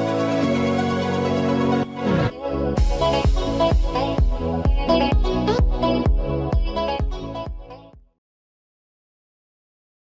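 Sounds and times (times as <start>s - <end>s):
electronic music: 0.0s - 8.0s.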